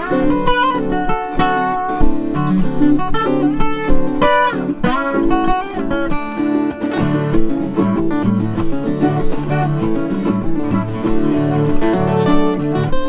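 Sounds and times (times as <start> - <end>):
two guitars plucked and strummed: 0.0 - 13.0.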